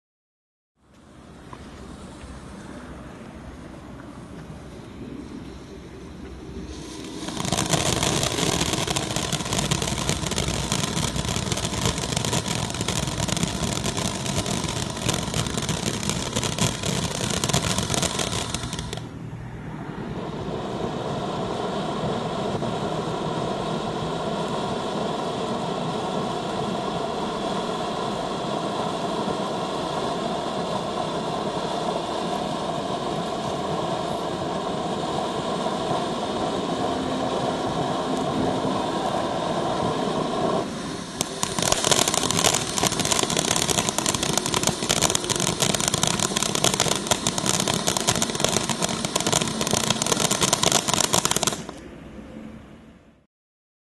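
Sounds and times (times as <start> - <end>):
firework fountain hissing and crackling: 1.0 - 19.2, 20.1 - 52.0.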